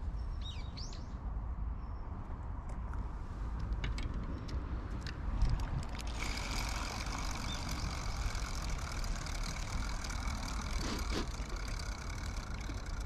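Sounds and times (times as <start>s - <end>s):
fishing reel whining and grinding: 5.4s - 13.0s.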